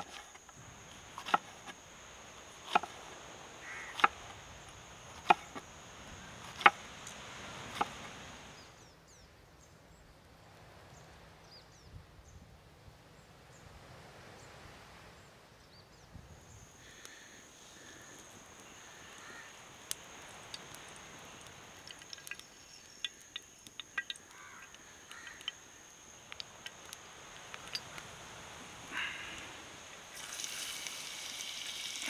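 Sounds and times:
knife chopping on wooden board: 0:03.9 - 0:04.2
high insect drone: 0:16.4 - 0:32.0
faint bird chirps: 0:21.2 - 0:26.3.

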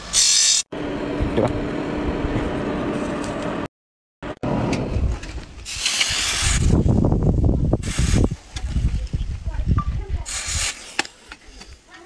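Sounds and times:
hiss: 0:00.0 - 0:00.7, 0:05.6 - 0:07.0, 0:07.8 - 0:08.8, 0:10.2 - 0:11.8.

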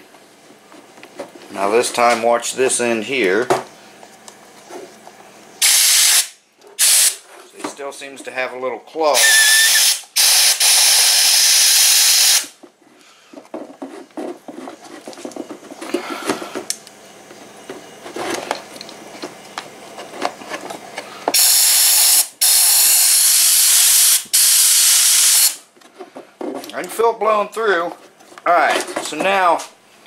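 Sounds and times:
compressed air blasts hissing: 0:05.6 - 0:07.2, 0:09.2 - 0:12.5, 0:21.3 - 0:25.6.

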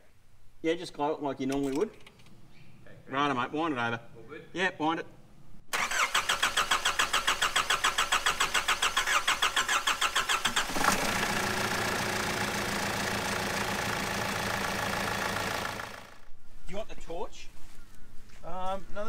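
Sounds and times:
starter motor cranking engine: 0:05.8 - 0:16.2
diesel engine idling: 0:10.6 - 0:16.3.

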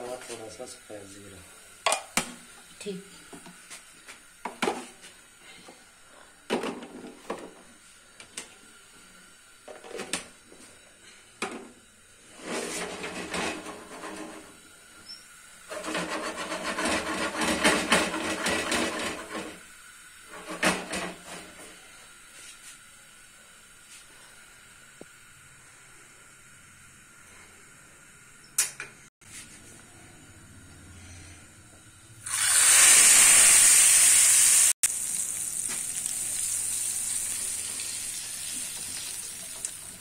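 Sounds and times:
spices crackling in hot oil: 0:32.2 - 0:40.0.

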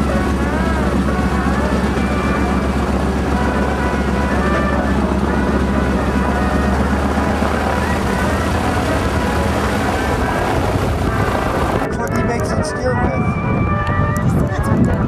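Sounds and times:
propeller plane engine droning: 0:00.0 - 0:15.0.

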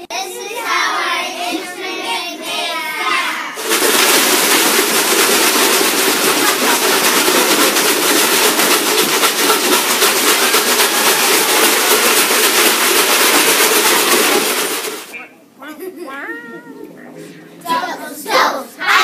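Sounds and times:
shakers rattling: 0:03.6 - 0:15.2.

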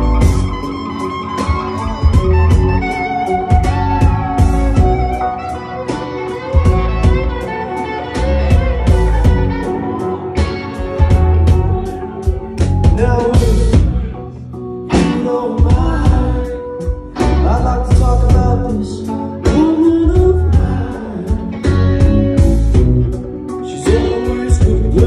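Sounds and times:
drum kit beating: 0:00.0 - 0:14.2, 0:14.9 - 0:18.9, 0:19.5 - 0:25.0
electric guitar: 0:00.0 - 0:25.0
man singing: 0:12.6 - 0:22.4, 0:23.5 - 0:25.0.

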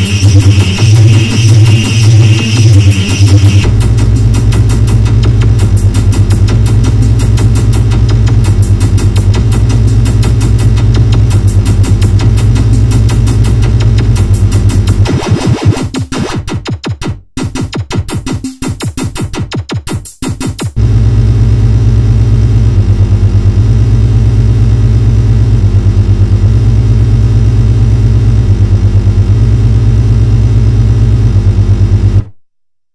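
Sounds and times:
pulsing synthesizer bass drone: 0:00.0 - 0:16.5, 0:20.6 - 0:32.3
electronic rock music: 0:00.0 - 0:23.1.

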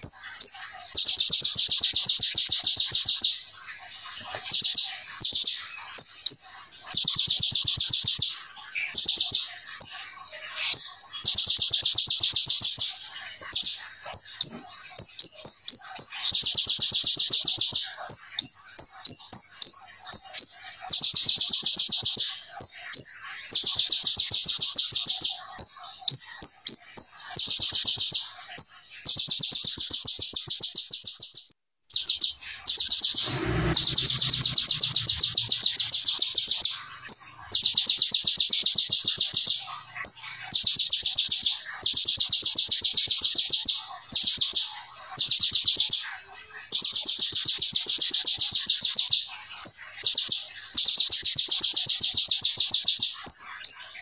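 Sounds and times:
bird chirps: 0:00.0 - 0:54.0
bird call: 0:29.0 - 0:54.0
bird fast high trills: 0:31.9 - 0:42.1.

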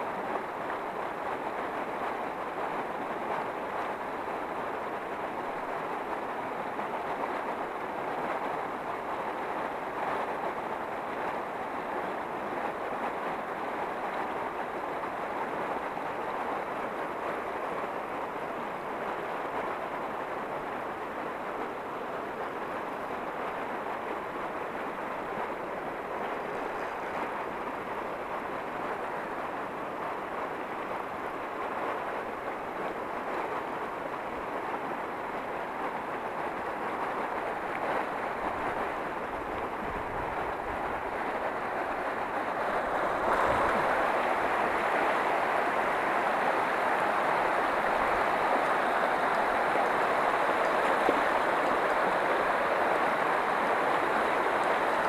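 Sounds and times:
river water rushing over rocks: 0:00.0 - 0:55.0.

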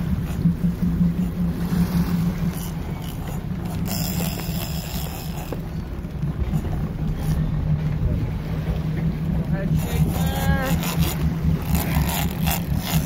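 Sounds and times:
boat engine running: 0:00.0 - 0:13.0
wind and water rushing: 0:00.0 - 0:13.0.

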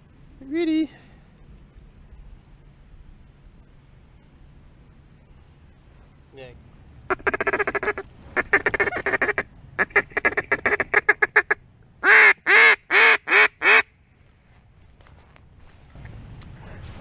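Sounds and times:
duck call feeding chatter: 0:07.1 - 0:13.9
duck call quacks: 0:07.1 - 0:13.9.

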